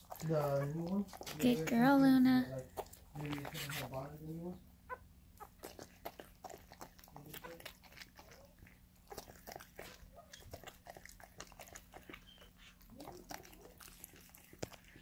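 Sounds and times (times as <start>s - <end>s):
dog licking wet smacking: 0.0s - 1.8s, 5.4s - 15.0s.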